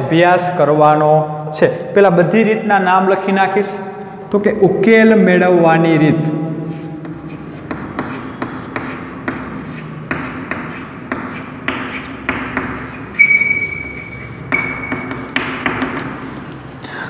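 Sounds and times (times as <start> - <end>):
high-pitched chalk squeal: 6.6 - 15.4
chalk tapping and scraping on chalkboard: 6.6 - 16.7.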